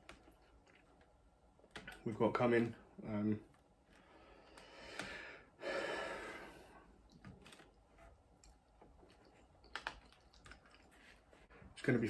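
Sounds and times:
man breathing out heavily: 4.1 - 6.9.

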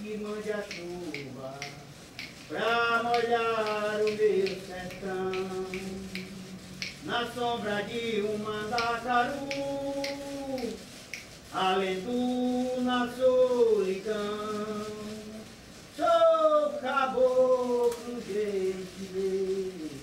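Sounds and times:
man singing long sliding notes: 0.0 - 10.9, 11.5 - 20.0
light sharp clicks: 0.6 - 2.5, 3.1 - 7.0, 8.7 - 11.4.

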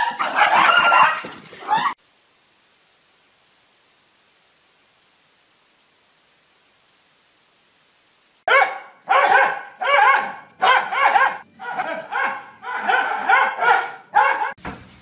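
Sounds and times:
dog barking: 0.0 - 1.2, 8.5 - 14.6.

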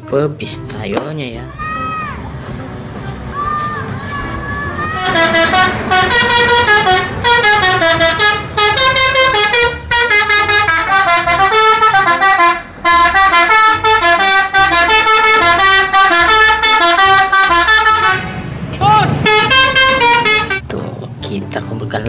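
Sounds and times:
musical bus horn melody: 1.5 - 20.6.

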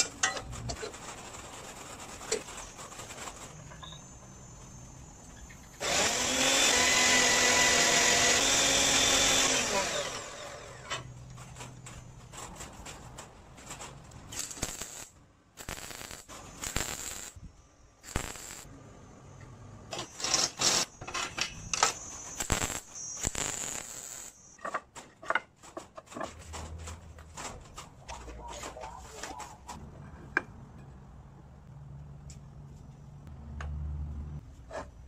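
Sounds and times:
crackling bursts: 0.4 - 3.8, 11.2 - 18.7, 19.9 - 24.6
clicks scrapes and knocks: 24.6 - 29.9.

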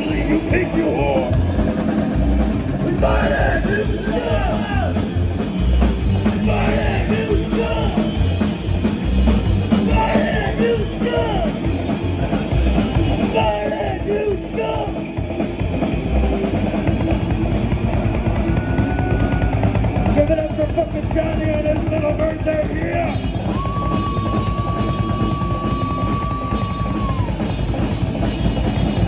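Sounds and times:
drum kit: 0.0 - 29.0
upright bass: 0.0 - 29.0
person singing: 2.8 - 5.0.

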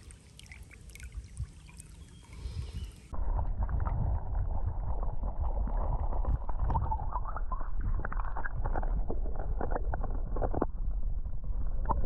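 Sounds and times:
muffled underwater water rushing: 0.0 - 12.0
small underwater clicks and knocks: 5.2 - 11.1, 11.8 - 12.0.

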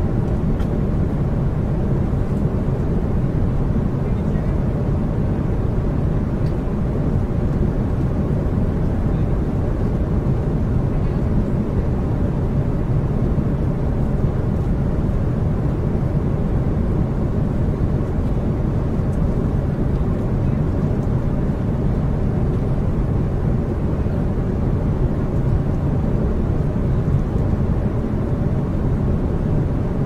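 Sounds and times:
aircraft engines droning: 0.0 - 30.0.

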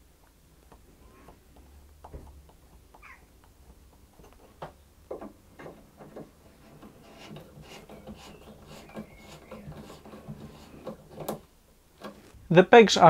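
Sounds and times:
wood rubbing on wood: 0.0 - 12.4
wooden peg squeak: 2.4 - 4.6, 5.6 - 11.4
file scraping wood: 5.6 - 11.4.

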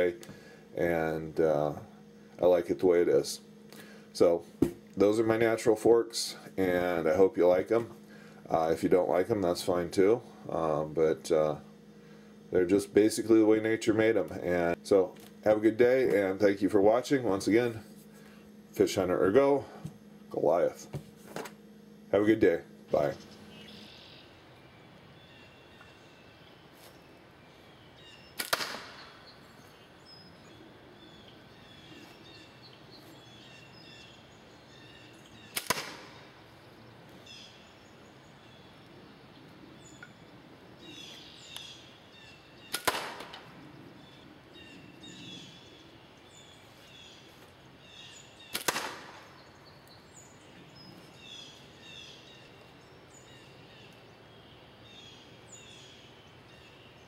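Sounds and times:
birds chirping faintly: 0.0 - 42.9, 43.5 - 57.0
slingshot ball hitting paper target: 28.4 - 29.0, 35.6 - 36.1, 42.8 - 43.4, 48.6 - 49.2.

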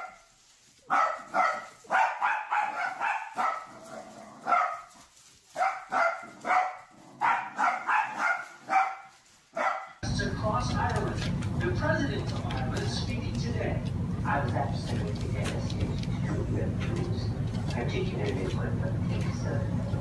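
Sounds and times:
small dog barking: 0.0 - 10.0.

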